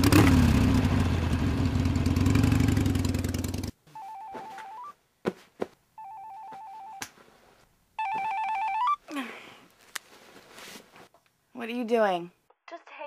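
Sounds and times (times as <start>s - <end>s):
mobile phone ringing: 3.9s - 5.0s, 6.0s - 7.0s, 8.0s - 9.0s
soft rustle: 9.1s - 11.2s.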